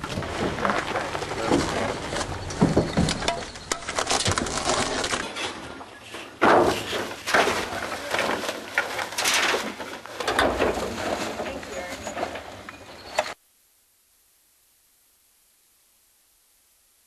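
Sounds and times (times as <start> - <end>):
hard debris clattering: 0.0 - 13.2.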